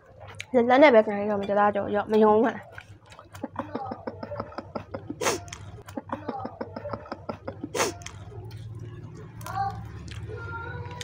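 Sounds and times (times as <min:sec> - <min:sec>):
crunchy chewing: 0:05.2 - 0:06.0, 0:07.7 - 0:11.0.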